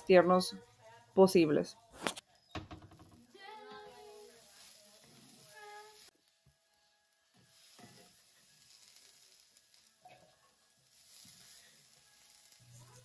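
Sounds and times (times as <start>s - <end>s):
faint sizzling in a skillet: 3.1s - 13.0s.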